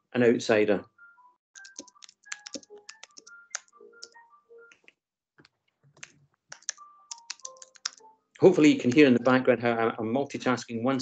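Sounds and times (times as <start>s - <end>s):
keyboard typing: 1.6s - 5.0s, 5.7s - 8.1s.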